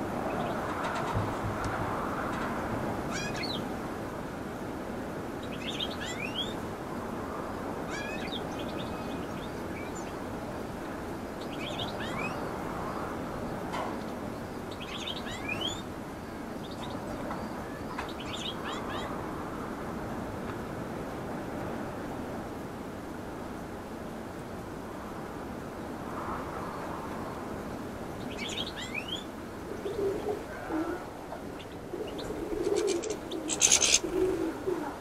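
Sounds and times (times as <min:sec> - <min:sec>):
low rushing background noise: 0:00.0 - 0:35.0
finches twittering: 0:31.6 - 0:34.3.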